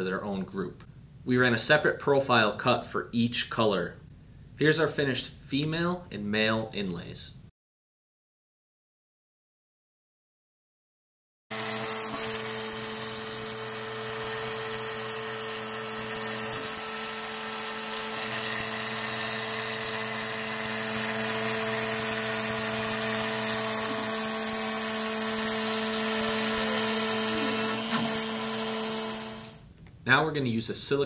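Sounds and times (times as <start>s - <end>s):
router spindle whine: 11.5s - 29.6s
end mill cutting acrylic: 11.5s - 29.7s.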